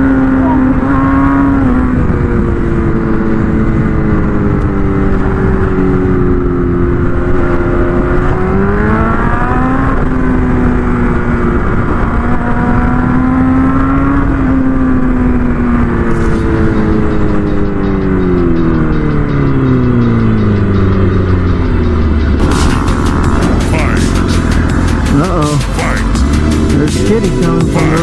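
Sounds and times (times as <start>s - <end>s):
motorcycle engine revving: 0.0s - 28.0s
steady rush of noise: 21.3s - 28.0s.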